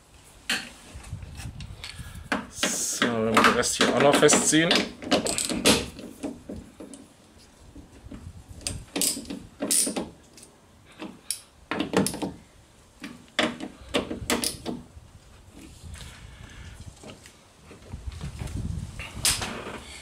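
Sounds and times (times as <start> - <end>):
hand tools knocking and clicking: 2.3 - 7.0, 11.0 - 12.4, 13.0 - 14.8.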